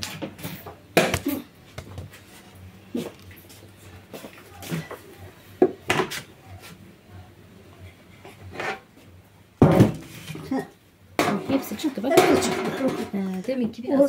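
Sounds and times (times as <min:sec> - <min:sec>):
metal tray clattering: 0:11.2 - 0:13.3.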